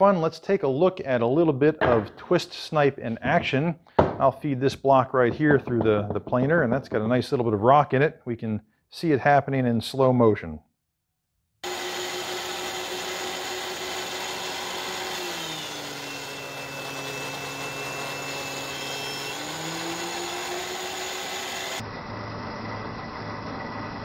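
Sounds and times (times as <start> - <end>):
planer cutting wood: 11.6 - 21.9
thickness planer motor hum: 11.6 - 24.0.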